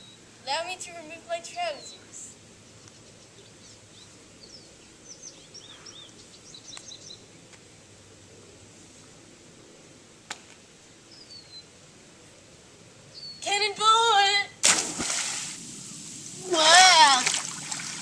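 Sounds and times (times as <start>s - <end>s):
small birds chirping: 1.6s - 7.6s, 11.0s - 11.8s, 13.1s - 13.5s
girl shouting loudly: 13.4s - 14.6s, 16.4s - 17.4s.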